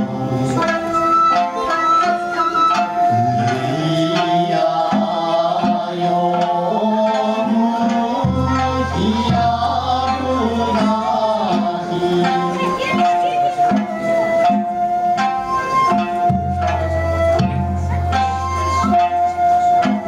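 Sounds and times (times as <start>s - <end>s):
plucked lute: 0.0s - 20.0s
person singing: 1.5s - 13.8s.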